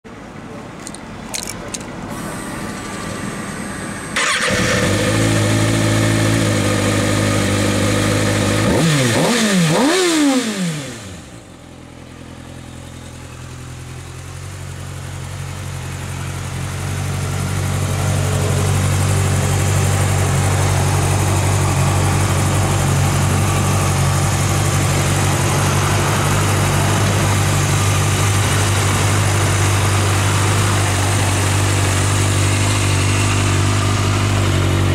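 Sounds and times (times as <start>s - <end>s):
motorcycle engine starting and idling: 0.8s - 34.9s
engine revving blips: 3.5s - 11.3s.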